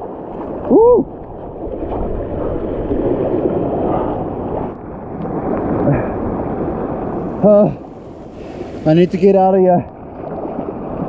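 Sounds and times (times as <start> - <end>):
surf washing over rocks: 0.0 - 11.0
wind buffeting microphone: 0.0 - 11.0.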